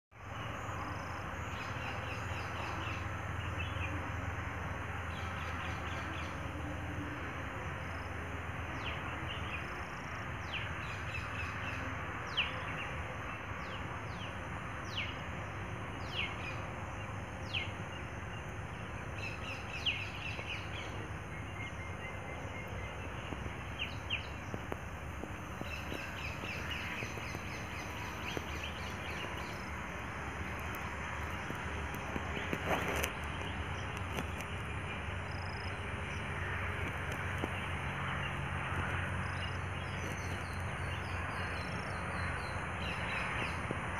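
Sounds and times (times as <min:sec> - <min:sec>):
outdoor background noise: 0:00.1 - 0:43.9
birds chirping: 0:08.8 - 0:43.8.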